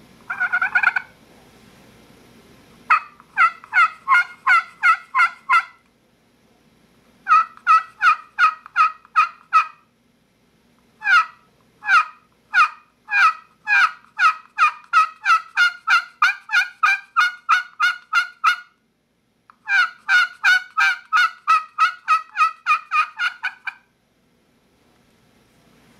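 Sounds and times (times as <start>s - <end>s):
turkey call yelps: 0.3s - 1.2s, 2.9s - 5.8s, 7.2s - 9.9s, 11.0s - 18.8s, 19.6s - 23.9s.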